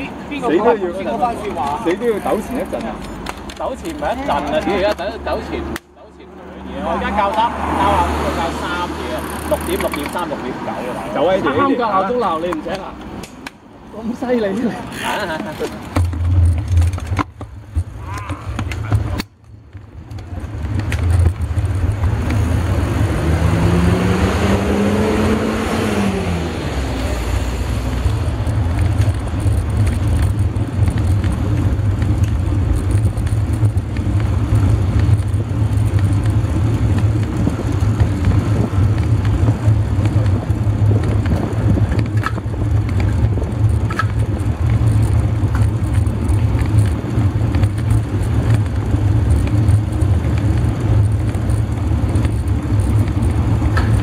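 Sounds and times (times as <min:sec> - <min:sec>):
road and tyre noise: 0:00.0 - 0:54.0
motor vehicle engine passing: 0:01.9 - 0:11.3, 0:20.3 - 0:54.0
wind rumble on microphone: 0:19.8 - 0:54.0.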